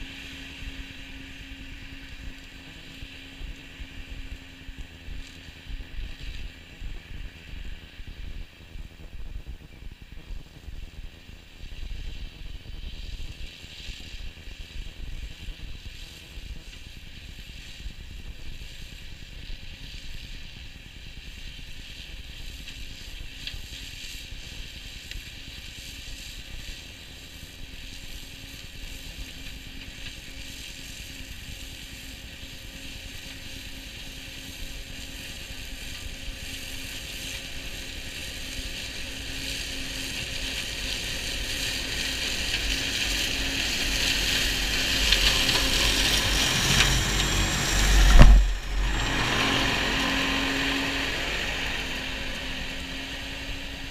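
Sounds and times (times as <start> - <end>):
flail hedge cutter whirring: 26.5 - 53.9.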